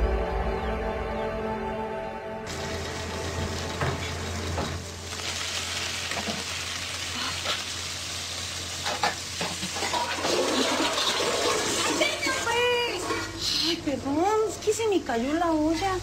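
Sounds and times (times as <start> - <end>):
food sizzling in hot oil: 2.5 - 12.6.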